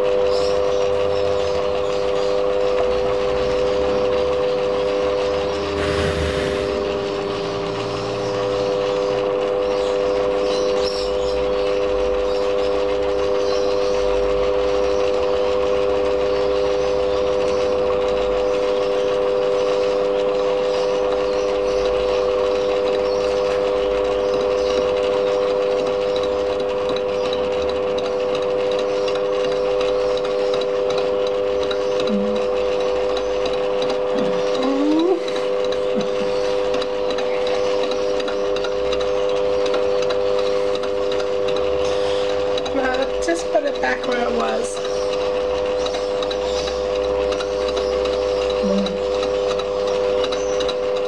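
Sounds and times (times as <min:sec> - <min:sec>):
lathe machine whine: 0:00.0 - 0:51.0
metal cutting noise: 0:01.6 - 0:11.3.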